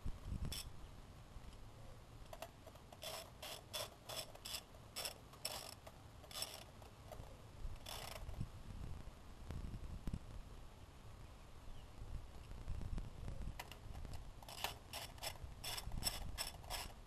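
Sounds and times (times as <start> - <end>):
ratchet clicking: 2.3 - 6.7, 7.8 - 8.3, 14.4 - 17.0.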